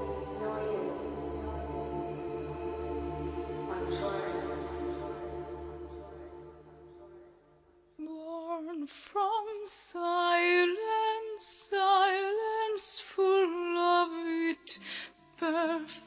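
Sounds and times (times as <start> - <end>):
woman singing with vibrato: 0.0 - 3.0, 8.0 - 14.8, 15.4 - 16.0.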